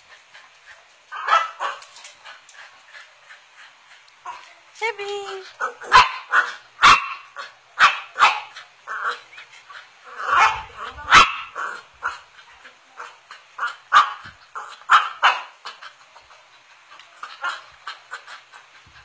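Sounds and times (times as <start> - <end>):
dog barking: 1.2 - 1.8, 5.6 - 8.6, 10.2 - 12.2, 13.9 - 14.3, 14.9 - 15.6.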